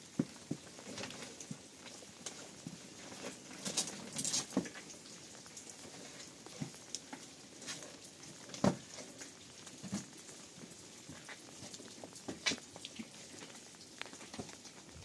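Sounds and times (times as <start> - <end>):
light rain falling: 0.0 - 15.0.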